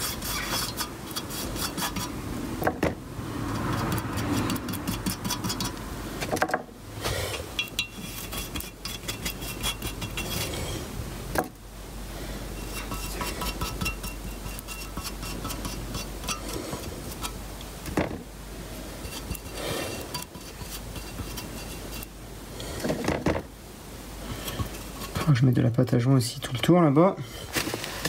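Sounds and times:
metal tools clinking and scraping: 0:07.3 - 0:10.5, 0:12.6 - 0:17.4, 0:19.0 - 0:22.1, 0:26.3 - 0:26.9.

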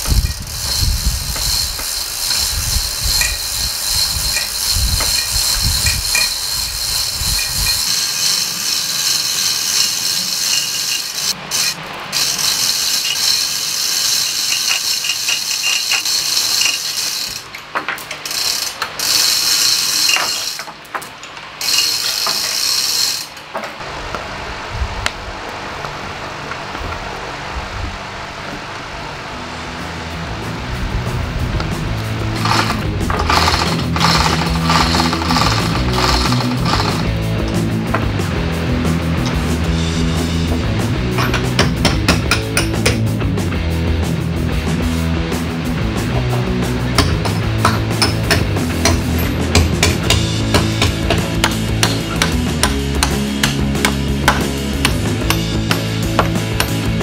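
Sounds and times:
chain clattering through hoist: 0:00.0 - 0:20.8, 0:21.6 - 0:23.5, 0:32.4 - 0:37.2
hoist pawl ratcheting: 0:00.0 - 0:20.8, 0:21.6 - 0:23.5, 0:32.3 - 0:37.6, 0:47.0 - 0:56.8.

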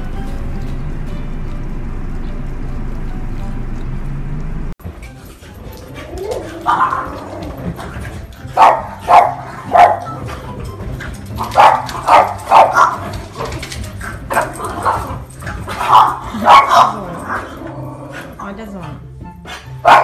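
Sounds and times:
dogs barking: 0:05.2 - 0:20.0.

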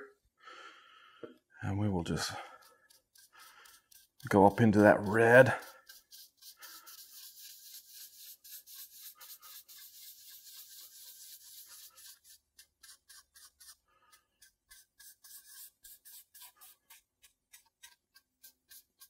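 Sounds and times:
rag wiping wood: 0:02.5 - 0:13.6.

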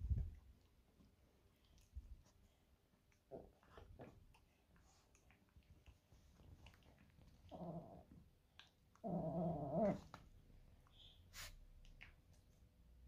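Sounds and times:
dog play-growling: 0:06.7 - 0:10.3.

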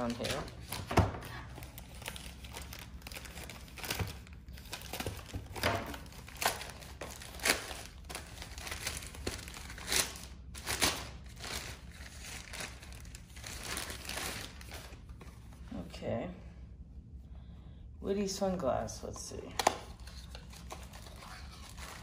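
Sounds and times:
wrapping paper crinkling: 0:00.0 - 0:15.3, 0:20.0 - 0:22.0.

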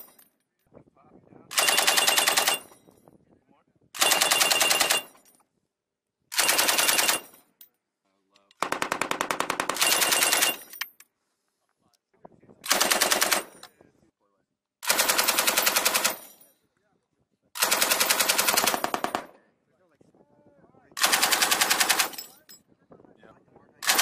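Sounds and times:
machine gun automatic fire: 0:01.5 - 0:02.7, 0:04.0 - 0:05.1, 0:06.3 - 0:07.3, 0:08.6 - 0:10.6, 0:12.7 - 0:13.6, 0:14.8 - 0:16.3, 0:17.6 - 0:19.3, 0:21.0 - 0:22.3.

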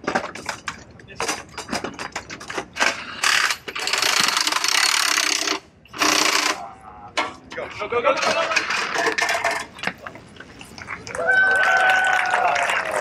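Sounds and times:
impact wrench bursts: 0:02.9 - 0:06.6.

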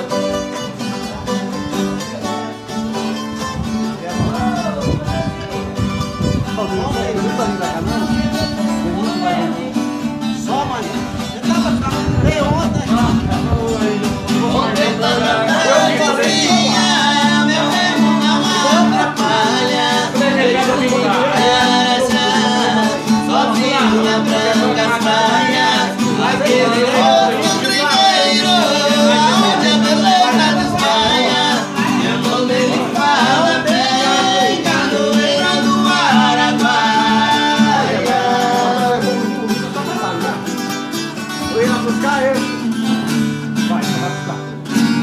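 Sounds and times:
acoustic guitars strummed: 0:00.0 - 0:45.0
person singing: 0:12.2 - 0:40.1.

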